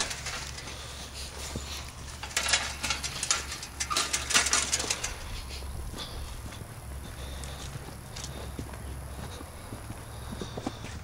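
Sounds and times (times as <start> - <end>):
footsteps crunching on dry grass: 0.0 - 2.2, 4.8 - 11.0.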